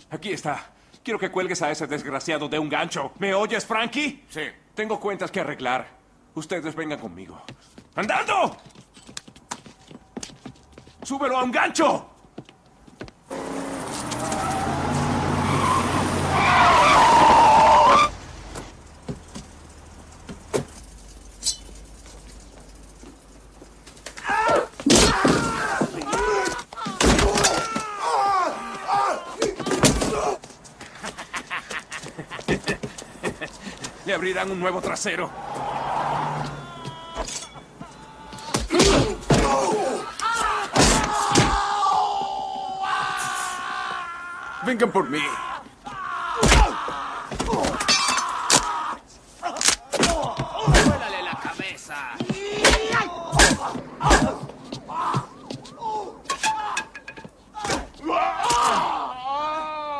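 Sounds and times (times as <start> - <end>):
car engine speeding: 13.3 - 21.3, 35.2 - 36.8
tyres squealing: 13.3 - 30.7, 32.4 - 59.7
men grunting and crying out: 24.2 - 33.8, 35.3 - 59.9
punch and body impacts: 38.5 - 39.9, 46.4 - 47.8, 49.7 - 51.2, 52.2 - 55.7.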